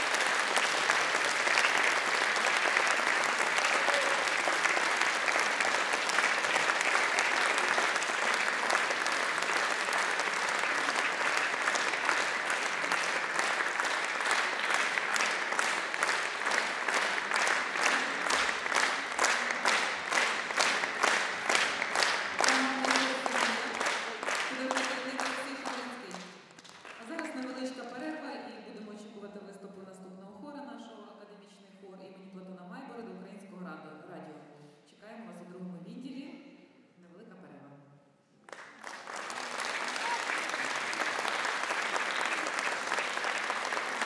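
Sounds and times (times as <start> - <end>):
audience applause: 0.0 - 26.0, 26.6 - 27.4, 38.5 - 44.0
rhythmic clapping in unison: 0.0 - 28.0, 38.4 - 44.0.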